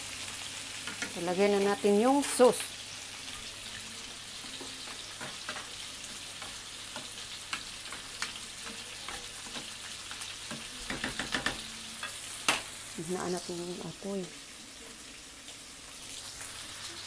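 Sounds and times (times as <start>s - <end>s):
meat and onion sizzling in a pan: 0.0s - 17.0s
oil popping and crackling: 3.3s - 12.8s.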